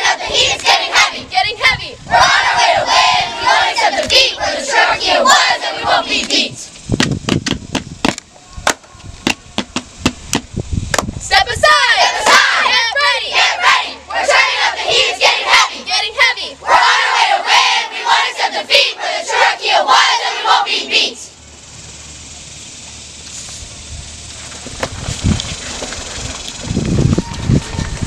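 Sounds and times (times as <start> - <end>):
girls chanting in unison: 0.0 - 6.7, 11.3 - 21.3.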